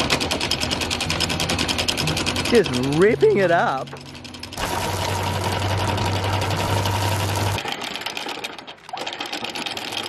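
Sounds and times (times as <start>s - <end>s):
windlass motor hum: 0.1s - 7.6s.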